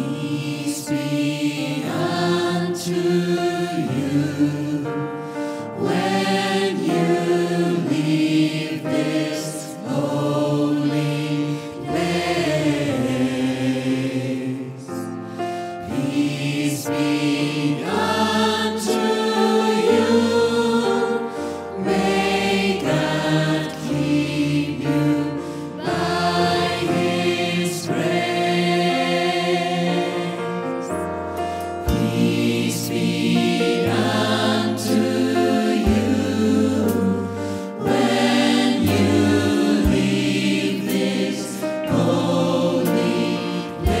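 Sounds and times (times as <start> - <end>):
gospel choir singing: 0.0 - 44.0.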